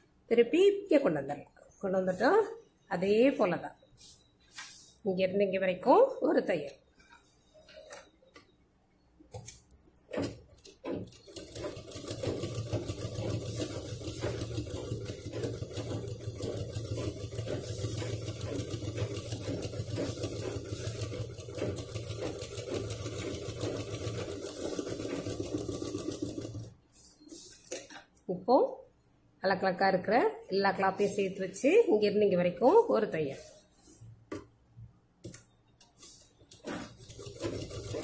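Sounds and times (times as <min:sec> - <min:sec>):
sewing machine stitching: 0:10.1 - 0:26.8, 0:36.1 - 0:38.0.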